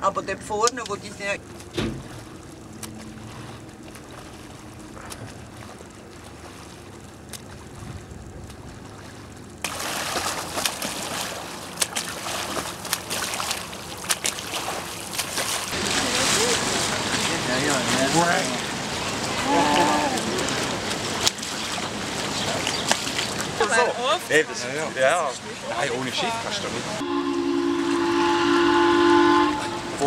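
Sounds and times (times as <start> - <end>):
water wash: 0.0 - 30.0
wind: 0.0 - 30.0
swimmer's arm strokes splashing: 1.4 - 23.7.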